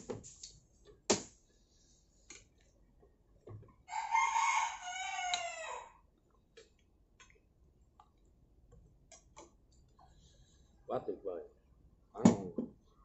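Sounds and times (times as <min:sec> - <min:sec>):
rooster crowing: 0:03.9 - 0:06.0.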